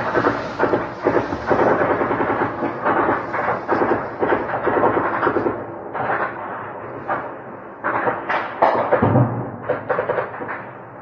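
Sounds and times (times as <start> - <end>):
rapid gunfire bursts: 0.0 - 5.5.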